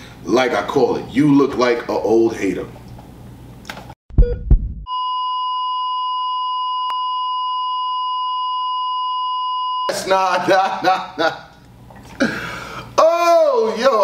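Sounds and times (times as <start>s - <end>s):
heart monitor flatline tone: 4.1s - 9.9s
heart monitor beeps: 4.2s - 9.9s.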